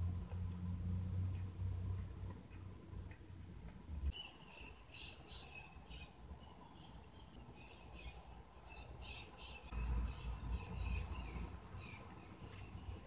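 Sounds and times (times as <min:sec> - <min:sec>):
small bird chirping: 0:04.1 - 0:13.0.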